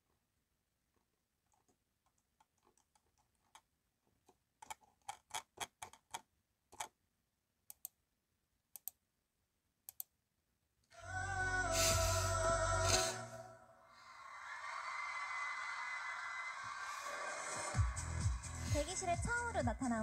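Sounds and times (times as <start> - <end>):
keyboard and mouse clicking: 4.6 - 7.0, 7.7 - 8.0, 8.8 - 9.0, 9.9 - 10.1.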